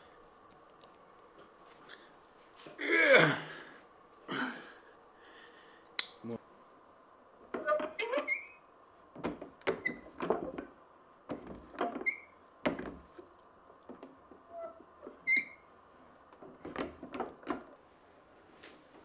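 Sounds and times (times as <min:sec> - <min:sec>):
short high squeaks: 0:14.5 - 0:16.0.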